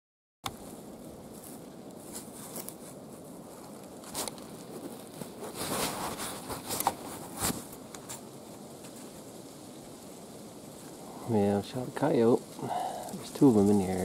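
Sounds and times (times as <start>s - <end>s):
clothing rustling against camera: 0.5s - 9.4s
knocks and scrapes: 4.0s - 8.2s.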